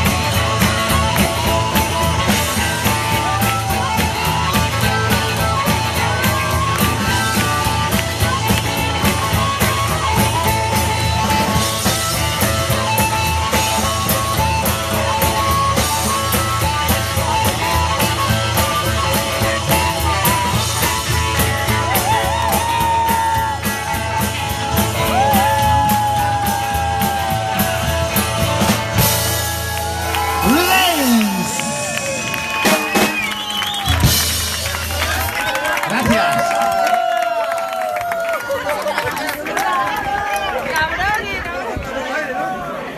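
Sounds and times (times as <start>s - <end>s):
blues harmonica: 0.0s - 35.0s
drum kit: 0.0s - 36.2s
upright bass: 0.0s - 37.0s
electric guitar: 0.0s - 37.2s.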